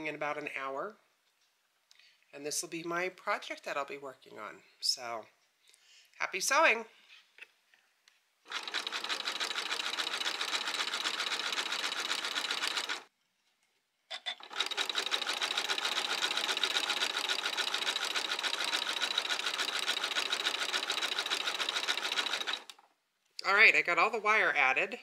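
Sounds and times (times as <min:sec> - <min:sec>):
sewing machine clicks: 0:08.5 - 0:13.1, 0:14.4 - 0:22.9
sewing machine running: 0:08.5 - 0:13.1, 0:14.4 - 0:22.8.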